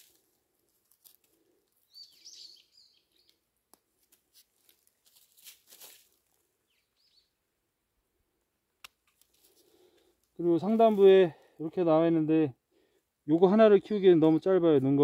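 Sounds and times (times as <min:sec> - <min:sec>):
small bird chirping: 0:01.8 - 0:03.4, 0:06.6 - 0:07.4.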